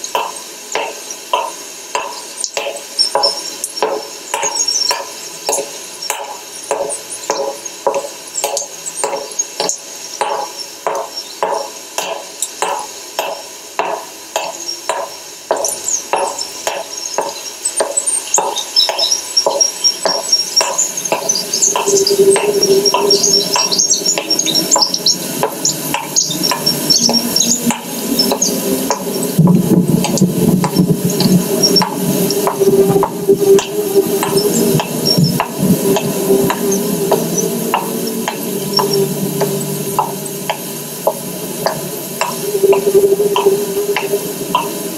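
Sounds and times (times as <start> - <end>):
low drone: 10.2 - 44.9
high chirping: 14.4 - 44.9
held tone: 20.1 - 44.9.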